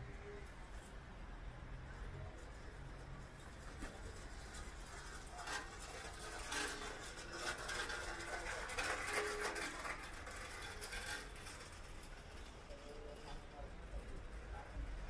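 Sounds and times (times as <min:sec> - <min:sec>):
city street rumble: 0:00.0 - 0:15.0
scattered clicks and knocks: 0:03.3 - 0:13.4.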